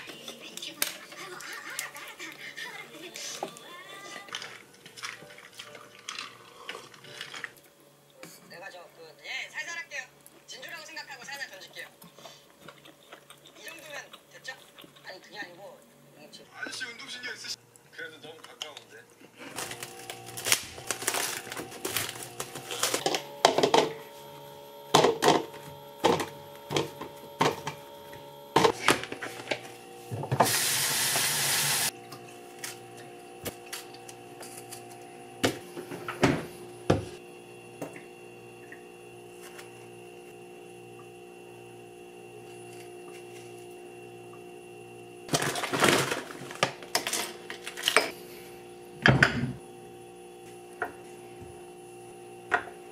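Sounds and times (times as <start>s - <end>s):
steady hum: 19.1s - 52.9s
tap water rushing: 29.5s - 32.3s, 37.8s - 38.8s
frozen berries clattering into glass: 45.3s - 48.0s.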